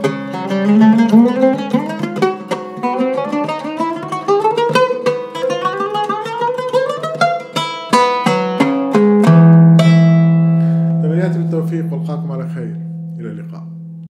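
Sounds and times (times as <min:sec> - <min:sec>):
oud plucked notes: 0:00.0 - 0:14.0
low oud note ringing: 0:08.2 - 0:14.0.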